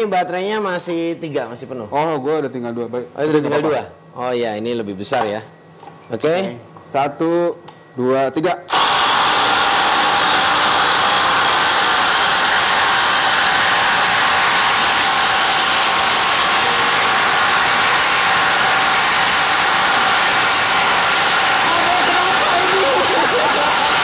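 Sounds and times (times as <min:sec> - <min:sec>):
impact drivers boring into wood: 0:08.7 - 0:24.0.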